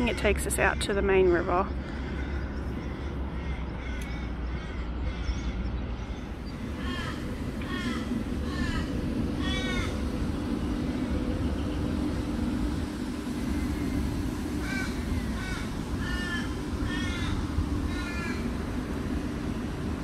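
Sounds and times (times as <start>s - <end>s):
steady low rumble: 0.0s - 20.0s
crow cawing: 1.3s - 10.0s, 14.6s - 18.5s.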